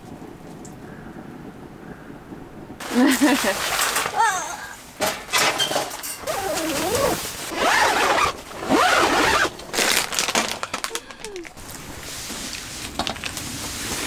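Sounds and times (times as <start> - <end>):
rustling crinkling handling noise: 2.8 - 14.0.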